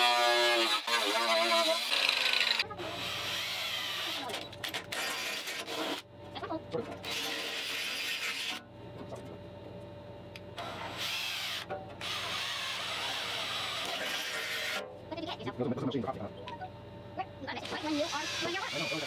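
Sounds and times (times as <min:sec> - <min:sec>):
cordless drill boring through steel: 0:11.0 - 0:14.8, 0:17.7 - 0:19.0.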